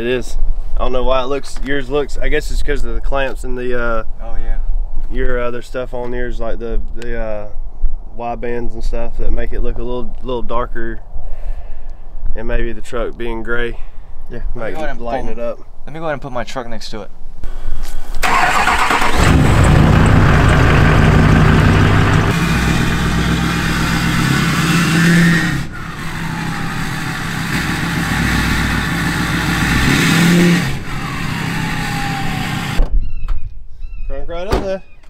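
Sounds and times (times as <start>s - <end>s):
diesel truck engine starting: 18.2s - 32.8s.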